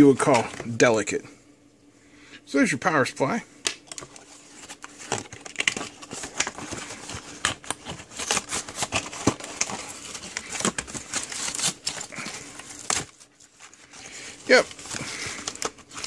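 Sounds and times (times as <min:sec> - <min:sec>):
cardboard box tearing: 0:04.6 - 0:13.3.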